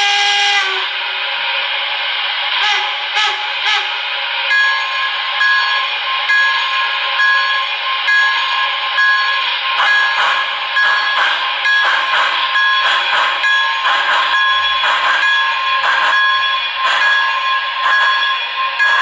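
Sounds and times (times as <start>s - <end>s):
steam exhaust chuffs: 0.0s - 19.0s
locomotive bell ringing: 4.4s - 19.0s.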